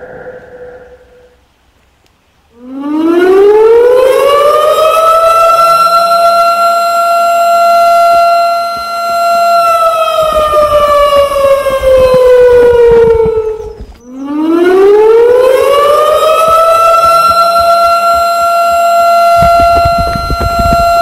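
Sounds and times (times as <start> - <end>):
siren-like wail: 0.0 - 1.5, 2.5 - 21.0
faint low thumps: 10.0 - 21.0.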